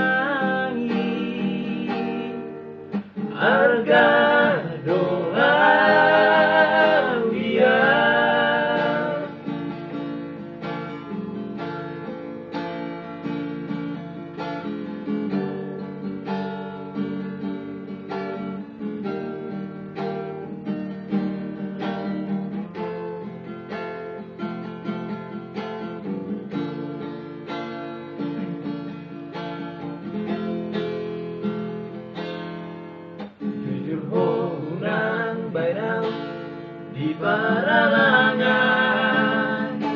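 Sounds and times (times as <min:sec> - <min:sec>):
men singing together: 0:00.0 - 0:02.4, 0:03.3 - 0:09.4, 0:33.6 - 0:36.2, 0:36.9 - 0:39.9
acoustic guitar strumming: 0:00.0 - 0:39.9.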